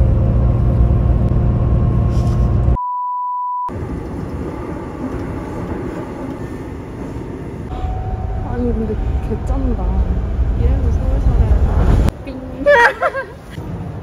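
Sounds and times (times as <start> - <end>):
bus rumbling in motion: 0.0 - 2.8, 3.7 - 14.0
single-pitch bleep: 2.8 - 3.7
subway train running: 3.7 - 14.0.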